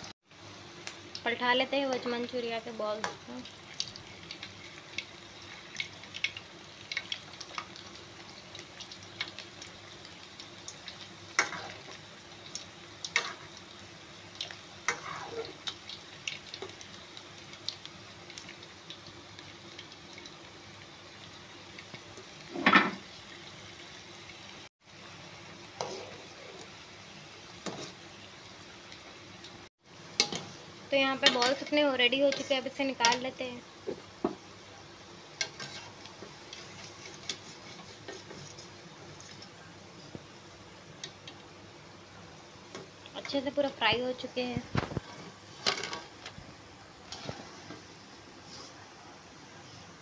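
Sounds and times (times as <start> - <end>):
food deep-frying in hot oil: 0.0 - 50.0
ladle stirring and clinking on pan: 35.4 - 39.5, 45.1 - 46.2.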